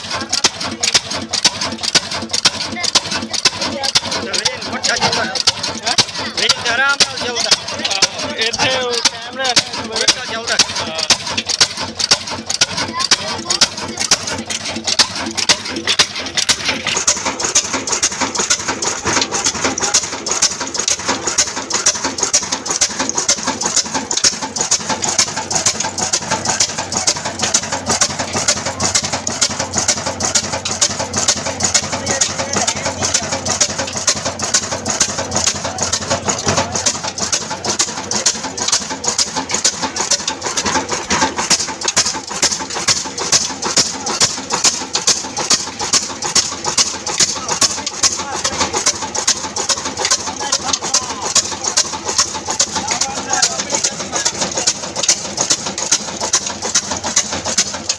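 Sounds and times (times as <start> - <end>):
diesel engine knocking: 0.0 - 57.9.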